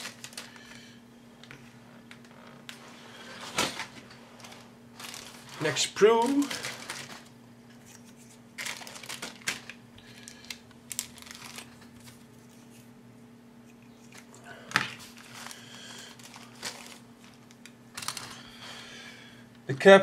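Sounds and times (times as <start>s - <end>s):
plastic bag crinkling: 0.0s - 0.8s, 3.3s - 12.7s, 14.9s - 18.7s.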